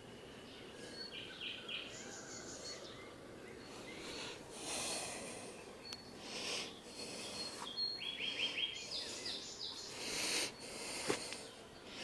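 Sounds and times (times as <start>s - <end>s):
high bird chirps: 5.8s - 10.7s
breathy rustle: 8.4s - 12.0s.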